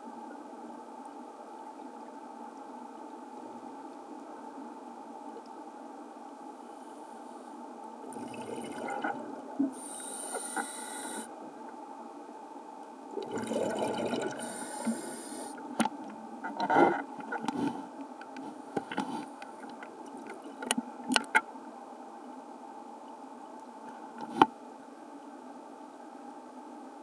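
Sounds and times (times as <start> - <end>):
underwater background noise: 0.0 - 27.0
exhaust bubbles rushing: 8.1 - 9.2, 13.2 - 14.4
diver breathing through regulator: 9.7 - 11.3, 14.4 - 15.6.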